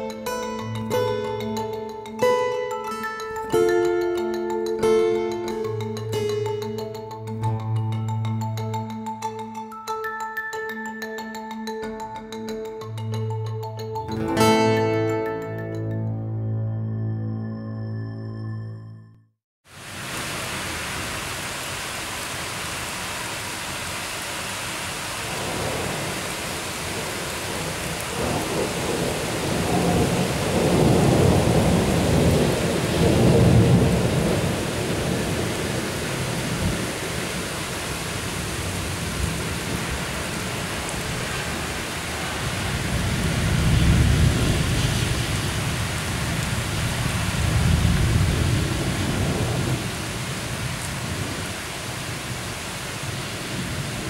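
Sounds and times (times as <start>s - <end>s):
steady rain falling: 19.7s - 54.0s
thunder rolling: 25.4s - 37.4s, 41.0s - 51.4s.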